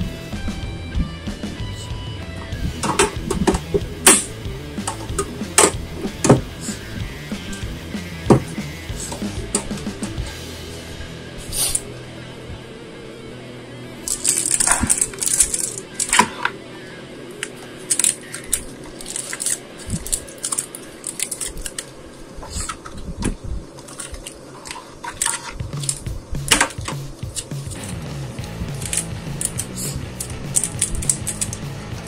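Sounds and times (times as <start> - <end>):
background music: 0.0 - 22.4, 25.1 - 32.0
foil packs crinkling: 14.0 - 23.1.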